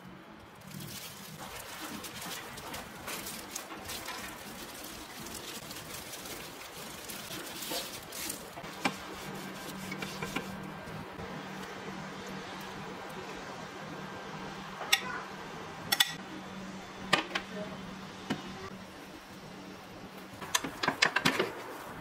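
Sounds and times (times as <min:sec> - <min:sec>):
plastic gloves crinkling: 0:00.4 - 0:11.2.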